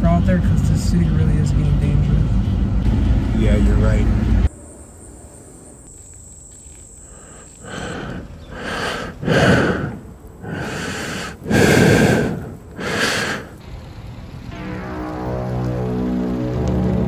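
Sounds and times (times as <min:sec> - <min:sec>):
quiet outdoor ambience: 0:00.0 - 0:17.0
loud heavy breathing: 0:07.0 - 0:13.6.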